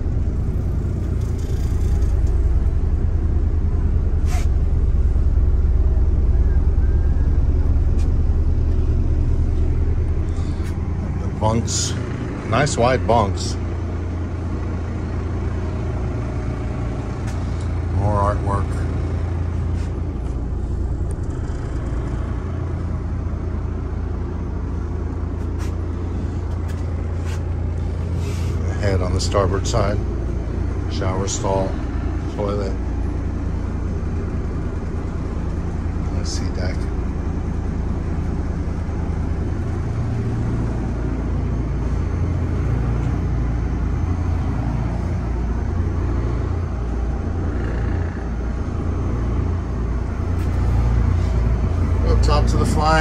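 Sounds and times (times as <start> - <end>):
low machinery rumble: 0.0 - 53.0.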